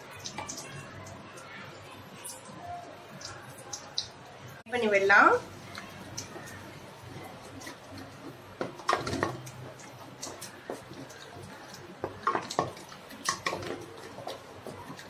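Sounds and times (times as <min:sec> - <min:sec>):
eggs sizzling in oil: 0:00.0 - 0:15.0.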